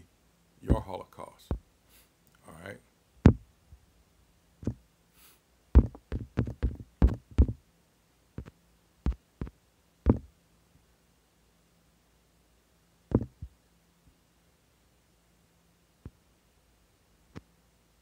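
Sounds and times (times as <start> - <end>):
taps on phone touchscreen: 3.2 - 3.4, 5.8 - 7.6, 8.4 - 10.3, 13.1 - 13.5.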